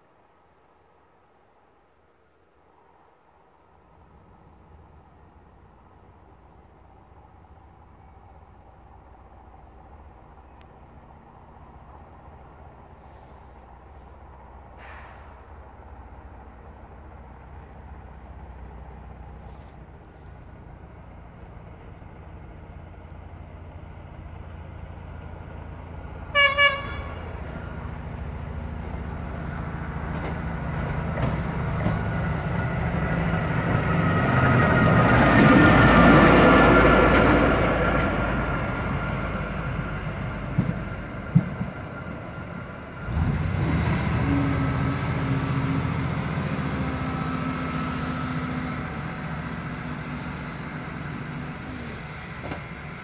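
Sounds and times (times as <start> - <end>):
rail vehicle diesel engine passing: 0.0 - 53.0
horn toots: 26.3 - 27.3.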